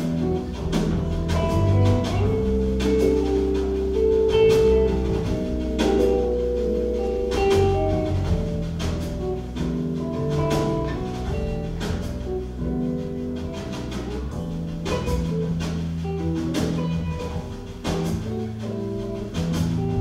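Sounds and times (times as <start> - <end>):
drum kit strokes: 0.0 - 20.0
live band playing: 0.0 - 20.0.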